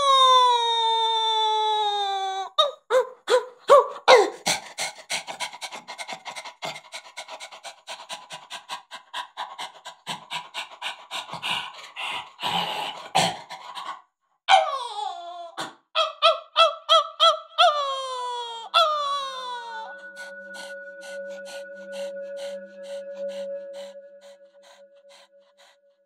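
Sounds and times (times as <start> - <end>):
man panting: 4.1 - 14.0
man whining: 17.6 - 25.2.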